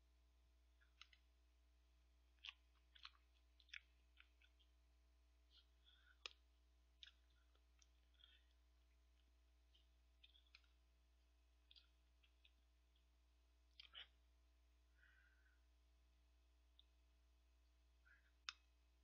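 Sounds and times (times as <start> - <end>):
soft mouth sounds: 2.3 - 4.8, 5.4 - 10.9, 11.5 - 14.2.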